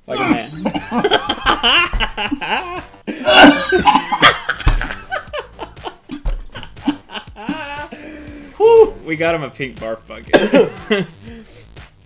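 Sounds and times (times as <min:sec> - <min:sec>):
man coughing and gagging: 0:00.0 - 0:08.1, 0:10.3 - 0:11.5
man laughing: 0:00.1 - 0:09.0, 0:10.3 - 0:11.4.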